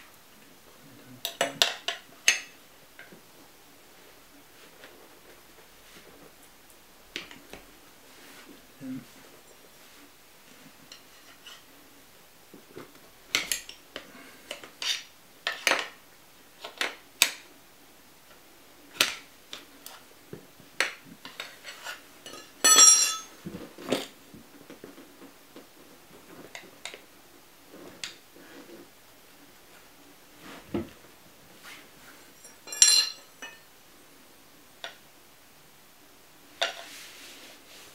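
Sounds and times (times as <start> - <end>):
metal levers clinking on rim: 32.4 - 33.3.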